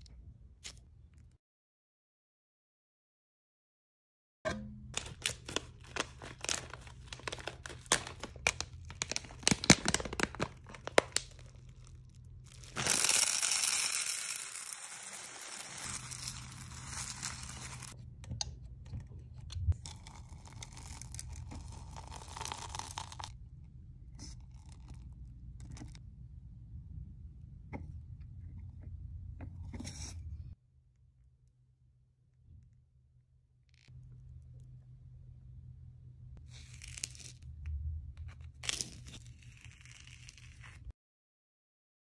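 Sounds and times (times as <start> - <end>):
wax beads poured into metal pot: 5.0 - 18.0, 19.8 - 23.3
wooden stick stirring beads: 5.0 - 18.0.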